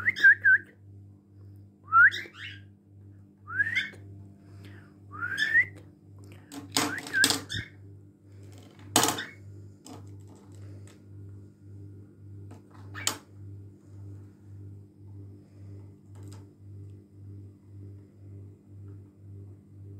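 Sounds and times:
faint pulsing hum: 0.0s - 19.9s
cockatiel whistled calls: 2.0s - 2.6s, 3.6s - 4.0s.

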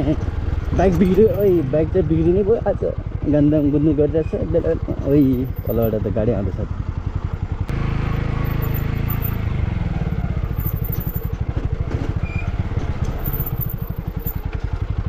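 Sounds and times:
motorcycle engine idling: 0.0s - 15.0s
person speaking: 0.8s - 6.4s.

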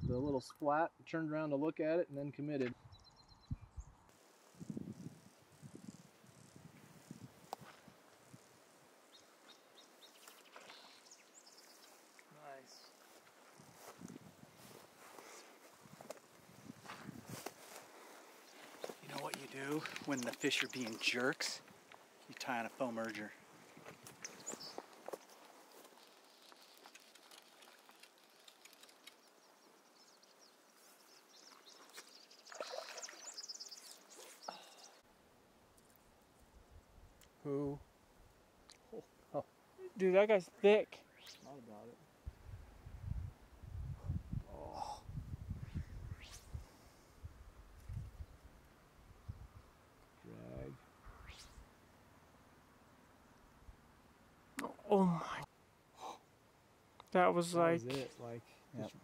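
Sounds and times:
faint bird chirps: 2.8s - 7.3s, 8.2s - 13.8s, 27.6s - 35.0s, 40.8s - 41.9s
rustling crackling noise: 4.1s - 30.0s
high bird chirps: 24.2s - 25.4s, 28.6s - 35.0s, 41.0s - 41.6s.

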